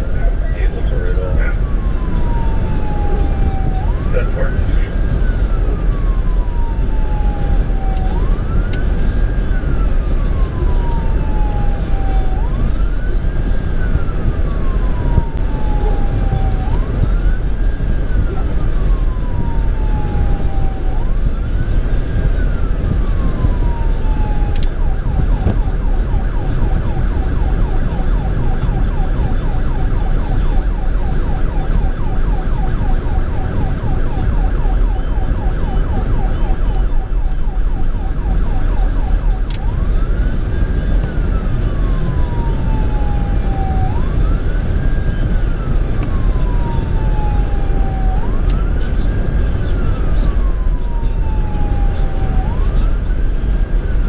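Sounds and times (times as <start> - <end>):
electronic siren wailing and yelping: 0.0 - 54.0
road and engine rumble: 0.0 - 54.0.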